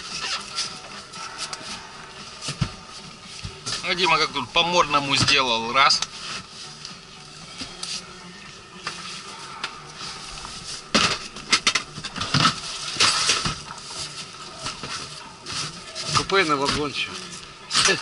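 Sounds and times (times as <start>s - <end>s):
things shifted inside van: 0.0s - 8.2s, 8.8s - 18.0s.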